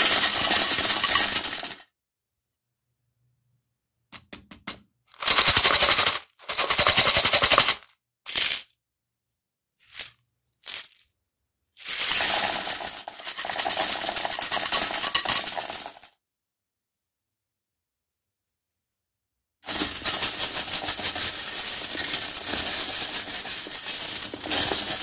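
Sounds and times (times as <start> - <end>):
candies rattling on ceramic: 0.0 - 1.8, 5.2 - 8.7, 9.8 - 11.2, 11.8 - 16.2, 19.7 - 25.0.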